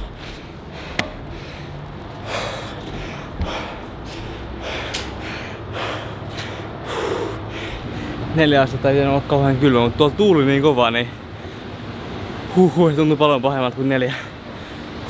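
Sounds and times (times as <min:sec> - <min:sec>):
man breathing heavily: 0:00.0 - 0:08.3, 0:11.2 - 0:12.7, 0:14.1 - 0:15.0.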